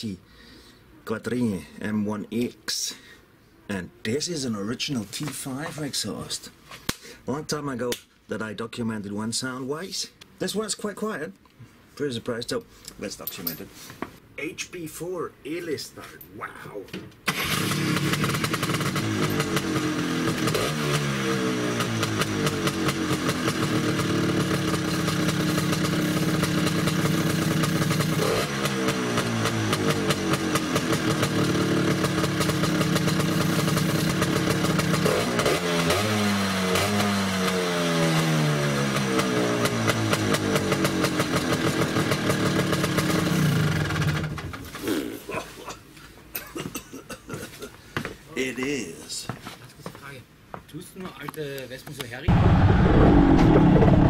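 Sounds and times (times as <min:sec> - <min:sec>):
scooter engine idling and revving: 0:17.3 - 0:44.6.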